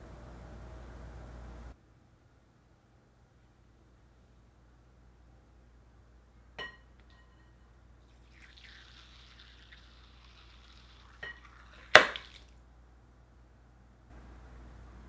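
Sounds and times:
faint hiss: 8.0s - 12.7s
soap splashing into bowl: 8.2s - 12.5s.

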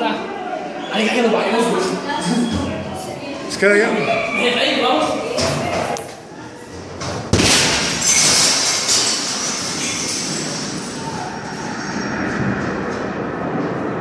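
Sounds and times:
loud rumbling and rattling: 7.3s - 14.0s.

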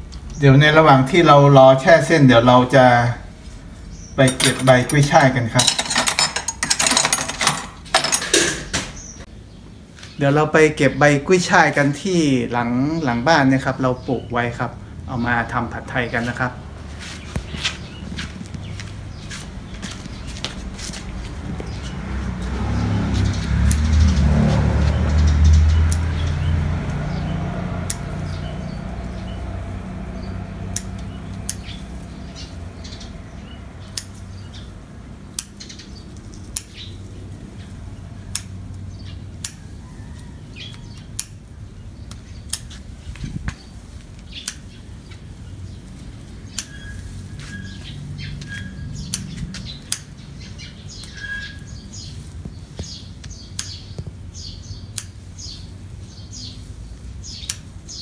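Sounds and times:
birds chirping: 0.0s - 58.0s
low vehicle rumble: 0.0s - 58.0s
stalks being snipped: 22.4s - 24.0s, 25.8s - 26.2s, 27.8s - 28.2s, 30.7s - 31.7s, 33.9s - 34.3s, 35.3s - 36.8s, 38.3s - 38.8s, 39.4s - 39.7s, 40.7s - 41.4s, 42.1s - 42.9s, 43.5s - 44.7s, 46.5s - 47.6s, 48.4s - 50.2s, 52.8s - 54.2s, 54.9s - 55.2s, 57.3s - 57.8s.

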